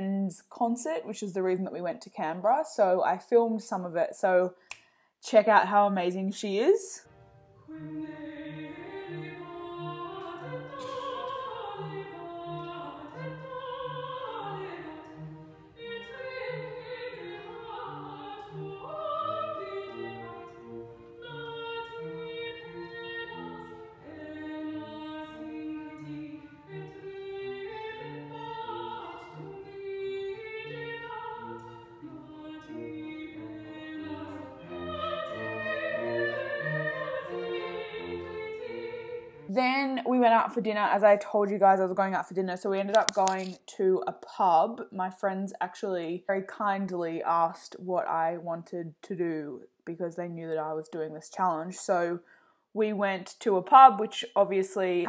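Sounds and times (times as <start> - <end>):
instrumental accompaniment: 7.0 - 40.0
woman singing classical solo: 7.6 - 42.1.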